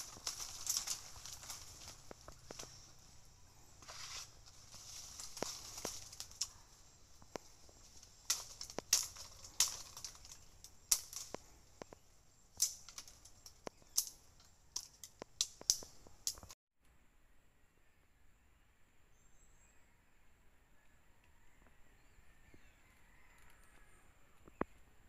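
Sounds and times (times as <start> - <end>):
machete chopping branches: 0.0 - 12.0, 12.6 - 16.5.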